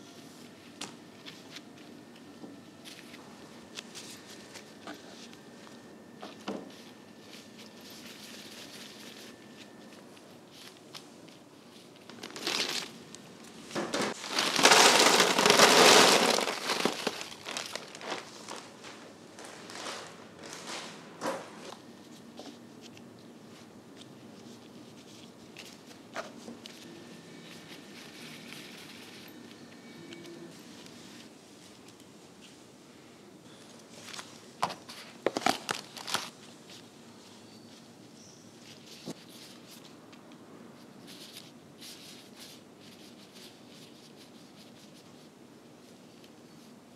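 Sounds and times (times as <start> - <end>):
gloved hands rustling pastry: 0.0 - 46.9
plastic crinkling: 2.8 - 21.0, 33.7 - 37.8.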